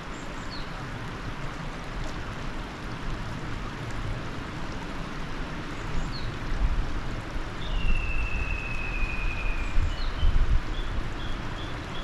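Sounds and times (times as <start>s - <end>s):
river rushing over gravel: 0.0s - 12.0s
bird whistling: 7.7s - 10.1s.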